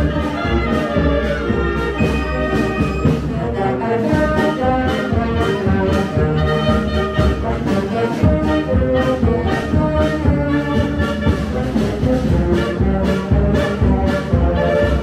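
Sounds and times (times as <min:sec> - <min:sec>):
marching wind band playing: 0:00.0 - 0:15.0.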